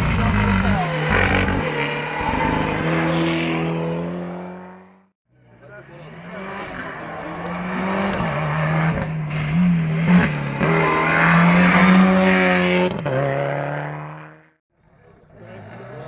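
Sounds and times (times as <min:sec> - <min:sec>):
rally car engine revving: 0:00.0 - 0:16.0.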